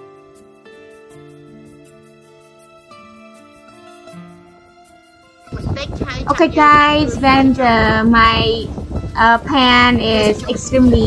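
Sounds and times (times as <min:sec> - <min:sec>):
sustained keyboard notes: 0:05.4 - 0:11.0.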